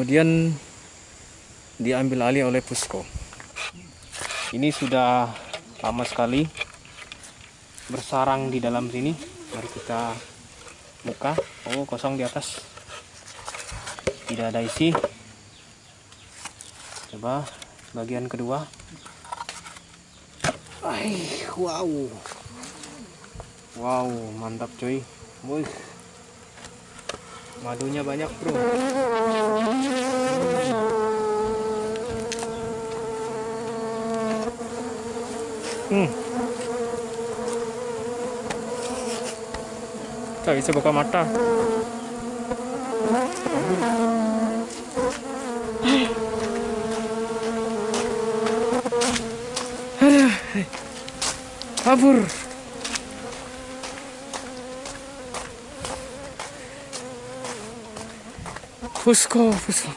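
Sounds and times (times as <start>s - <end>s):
bees buzzing: 19.4s - 59.9s
bee whining past: 20.8s - 59.0s
footsteps: 38.4s - 39.7s, 44.7s - 59.9s.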